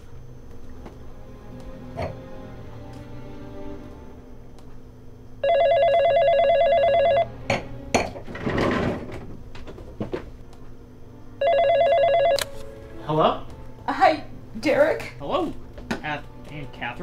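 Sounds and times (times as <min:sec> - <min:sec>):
telephone ringing with warbling trill: 0:05.4 - 0:07.3, 0:11.4 - 0:12.4
knocks and scrape: 0:08.1 - 0:10.3.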